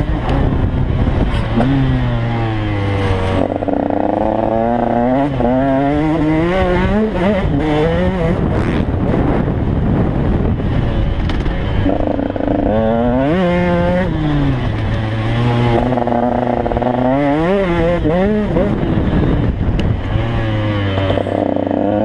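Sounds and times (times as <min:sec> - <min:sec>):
dirt bike engine revving: 0:00.0 - 0:22.0
wind noise on microphone: 0:00.0 - 0:22.0.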